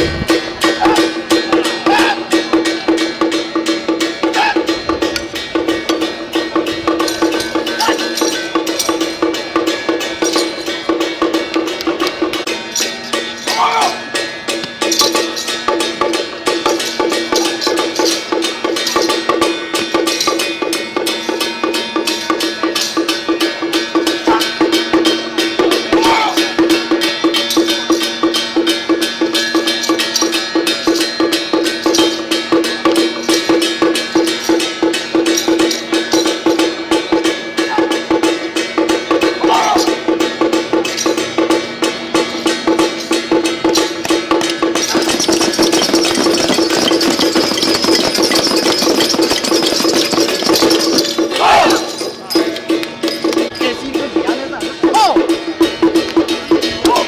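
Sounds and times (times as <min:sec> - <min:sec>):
fast drum percussion: 0:00.0 - 0:57.0
steady ringing tone: 0:40.2 - 0:56.7.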